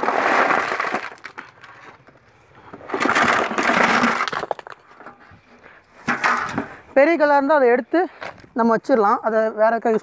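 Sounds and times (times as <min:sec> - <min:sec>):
stones clattering into pit: 0:00.0 - 0:05.2.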